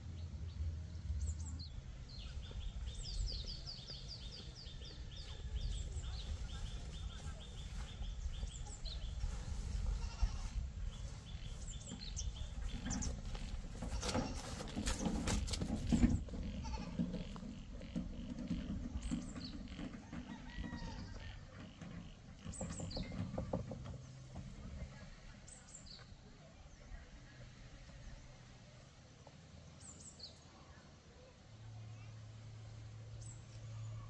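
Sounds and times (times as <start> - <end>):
low rumble: 0.0 - 14.0
farm animals calling: 1.9 - 23.5.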